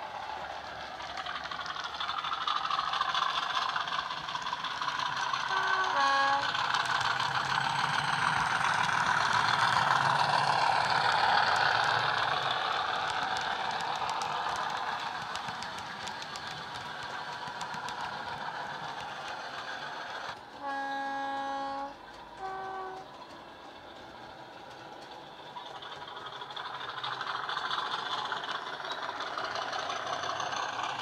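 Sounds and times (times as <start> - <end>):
diesel locomotive engine running: 0.0 - 31.0
two-tone train horn: 5.5 - 6.6, 20.6 - 23.2.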